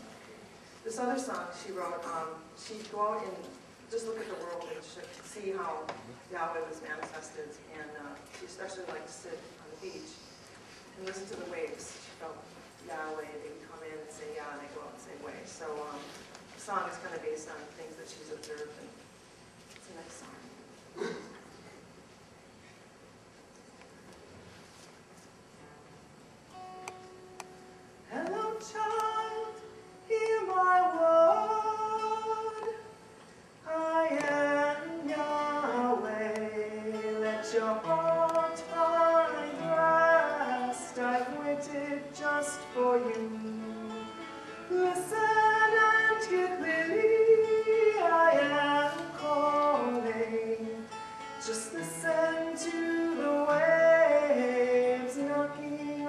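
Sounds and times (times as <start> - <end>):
acoustic guitar: 0.0 - 19.0, 23.5 - 56.0
woman singing: 28.1 - 33.0, 33.6 - 56.0.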